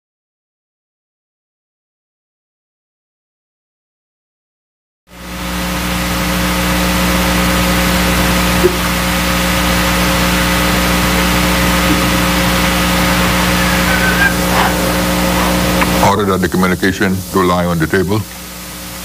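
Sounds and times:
electrical hum and hiss: 0:05.1 - 0:19.0.

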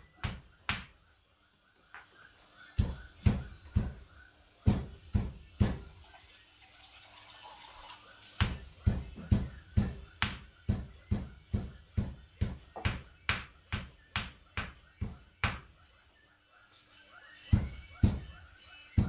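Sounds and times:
pestle pounding in a mortar: 0:00.0 - 0:00.9, 0:02.8 - 0:04.0, 0:04.7 - 0:05.9, 0:08.4 - 0:15.7.

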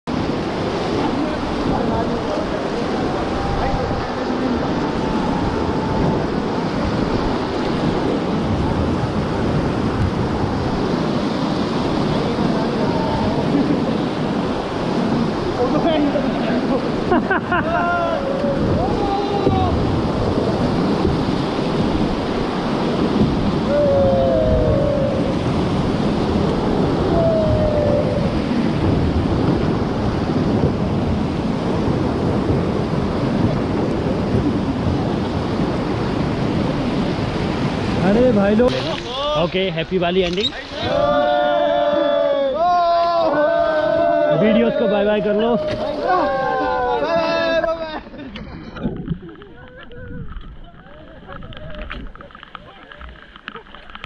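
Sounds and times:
wind on microphone: 0:00.0 - 0:54.0
river rapids rushing: 0:00.1 - 0:48.0.

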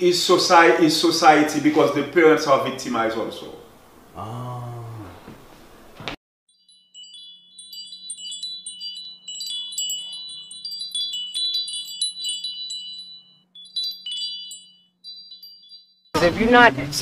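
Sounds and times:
wind chimes tinkling: 0:06.5 - 0:17.0.

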